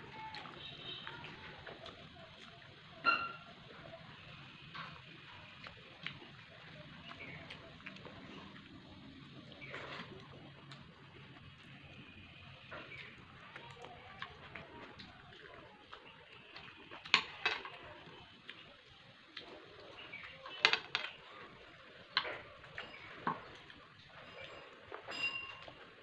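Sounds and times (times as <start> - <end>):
clinks against ceramic plate: 24.2 - 25.8.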